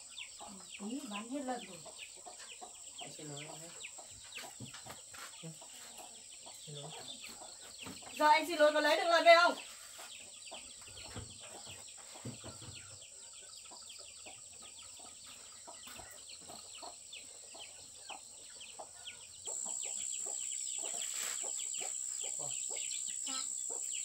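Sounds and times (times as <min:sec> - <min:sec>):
chickens chirping: 0:00.0 - 0:24.0
small birds chirping: 0:00.0 - 0:24.0
high insect drone: 0:19.4 - 0:24.0.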